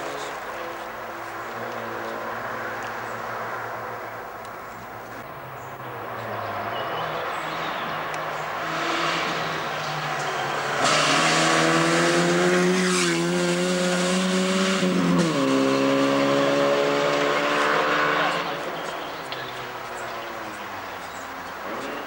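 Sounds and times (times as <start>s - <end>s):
rally car engine accelerating: 6.3s - 20.2s.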